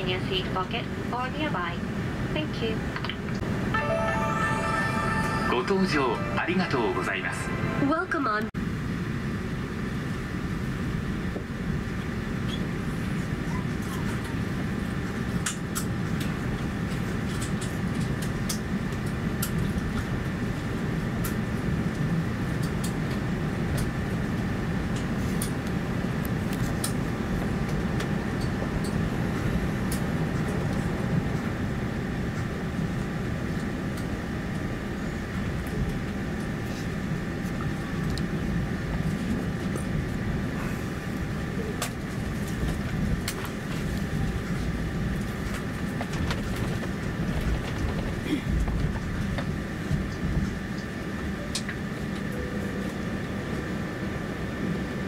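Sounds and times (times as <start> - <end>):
aircraft cabin rumble: 5.5 - 55.0.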